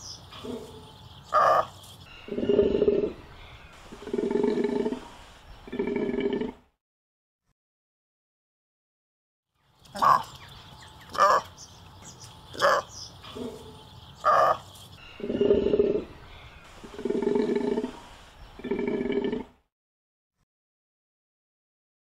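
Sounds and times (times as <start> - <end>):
animal calling: 0.0 - 6.6, 9.9 - 10.4, 11.0 - 11.5, 12.2 - 18.0, 18.6 - 19.6.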